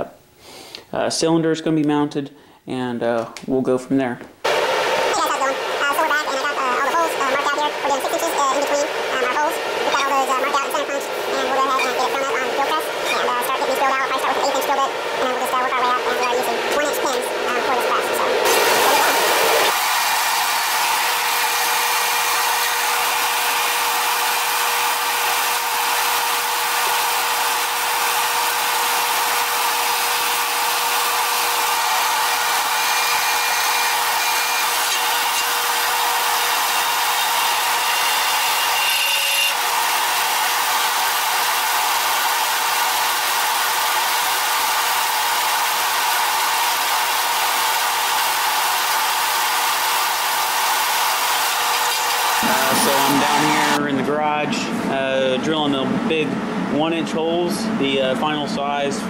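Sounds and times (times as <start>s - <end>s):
drill press hum: 4.5s - 53.8s
drill bit rasping through steel: 20.6s - 45.0s.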